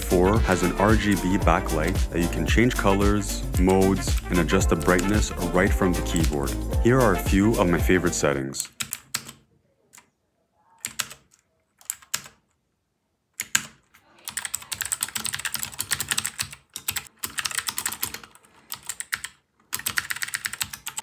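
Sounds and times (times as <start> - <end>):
clicky keyboard typing: 8.6 - 10.1, 10.8 - 12.5, 13.4 - 21.0.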